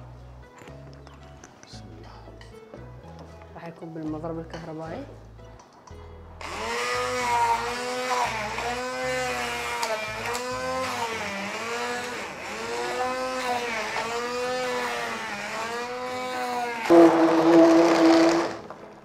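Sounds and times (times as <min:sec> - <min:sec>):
electric hand mixer whine: 0:06.4 - 0:19.0.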